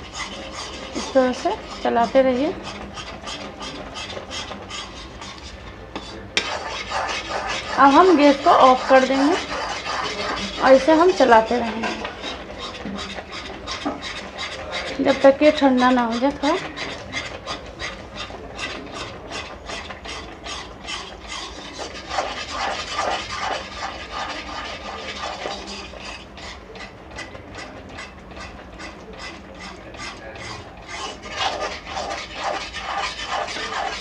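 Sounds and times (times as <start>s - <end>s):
metal spatula scraping a metal pan: 0.0s - 34.0s.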